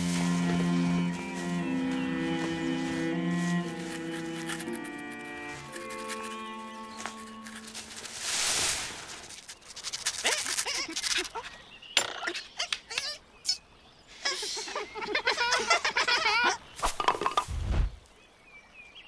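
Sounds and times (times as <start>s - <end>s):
leaves rustling: 0.0s - 11.7s
cartoon beavers chattering: 9.9s - 13.6s
warbling laughter: 14.3s - 16.6s.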